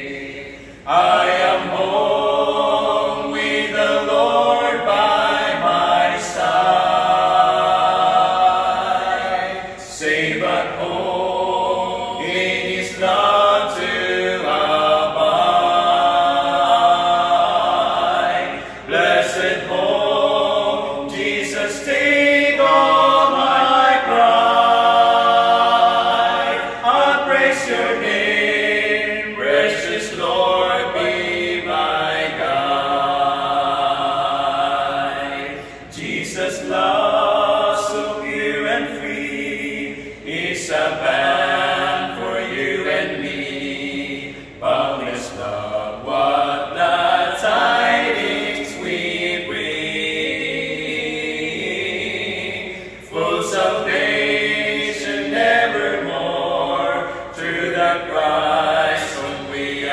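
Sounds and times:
male quartet singing a cappella: 0.0s - 59.9s
singers breathing: 0.4s - 0.9s, 18.5s - 18.9s, 35.5s - 36.0s, 44.2s - 44.6s, 52.6s - 53.1s, 57.0s - 57.4s.

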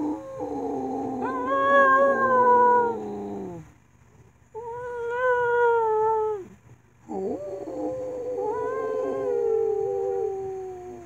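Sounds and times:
dog howling: 0.0s - 3.7s, 7.1s - 11.0s.

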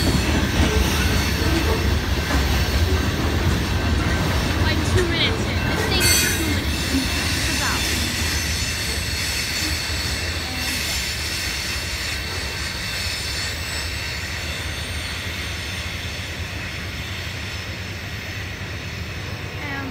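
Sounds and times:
freight train cars rolling: 0.0s - 19.9s
high-pitched wheel squeal: 5.8s - 17.6s.

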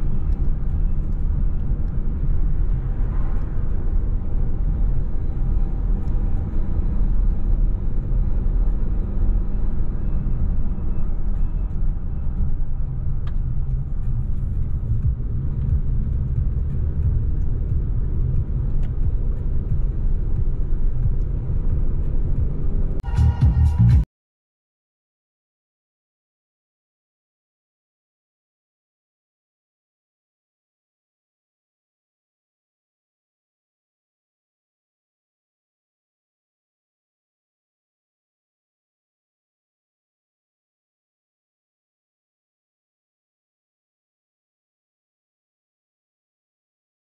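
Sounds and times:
car engine and tyre noise: 0.0s - 24.0s
short pitched sound: 23.0s - 24.0s.

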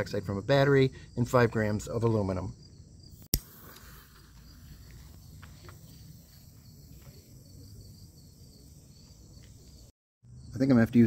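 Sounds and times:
crickets trilling: 0.0s - 11.0s.

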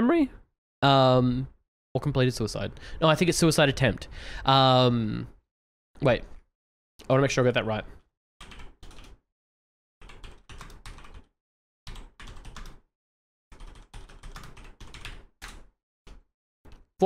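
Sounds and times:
typing on computer keyboard: 8.4s - 9.2s, 10.0s - 11.3s, 11.9s - 12.8s, 13.5s - 16.9s.

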